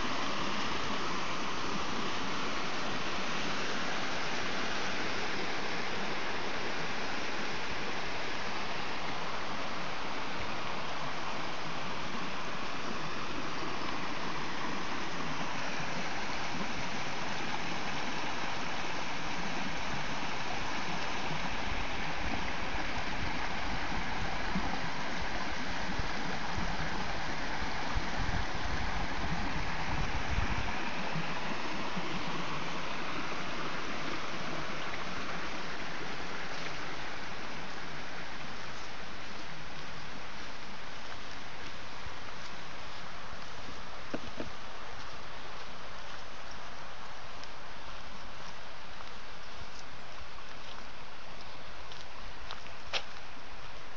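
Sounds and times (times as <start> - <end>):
stream flowing: 0.0 - 53.9.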